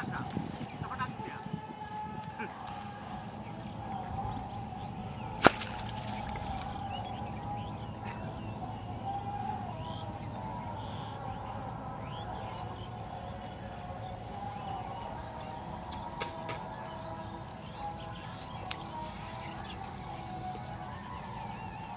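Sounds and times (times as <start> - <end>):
faint bird chirps: 2.4 - 21.9
sharp crack: 5.4 - 6.3.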